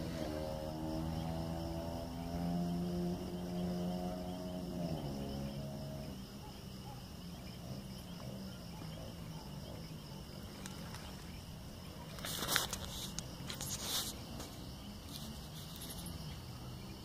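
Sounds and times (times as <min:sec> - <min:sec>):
crickets trilling: 0:00.0 - 0:17.0
brief rustles: 0:12.1 - 0:16.2.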